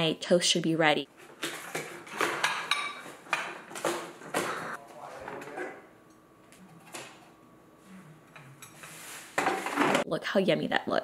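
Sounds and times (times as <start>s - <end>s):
kitchenware clinking and knocking: 1.4s - 4.6s, 9.4s - 10.1s.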